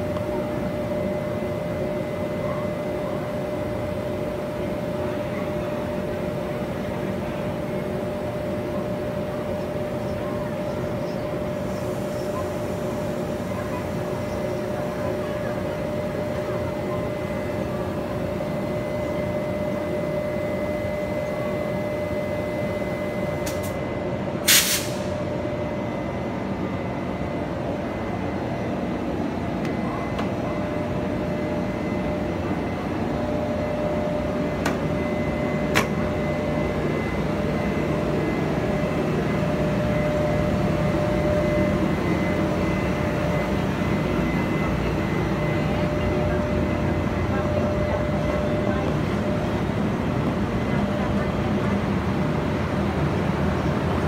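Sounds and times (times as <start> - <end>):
locomotive electrical hum: 0.0 - 54.0
train pulling away rumble: 0.0 - 54.0
air hiss burst: 24.5 - 25.1.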